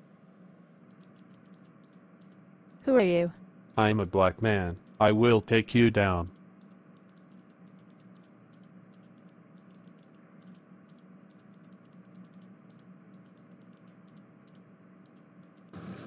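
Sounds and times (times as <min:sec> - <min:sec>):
faint steady hum and hiss: 0:00.0 - 0:16.0
light irregular clicking: 0:00.8 - 0:02.8, 0:06.3 - 0:15.7.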